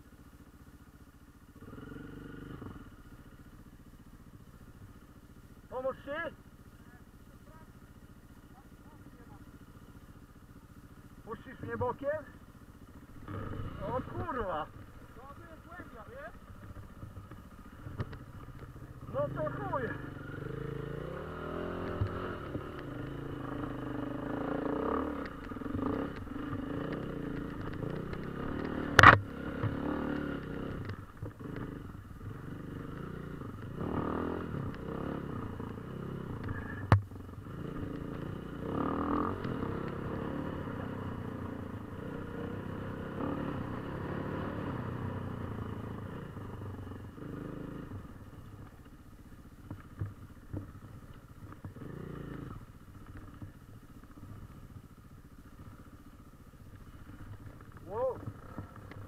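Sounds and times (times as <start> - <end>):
dirt bike engine revving: 1.6 - 3.0, 11.2 - 48.5, 51.5 - 52.7.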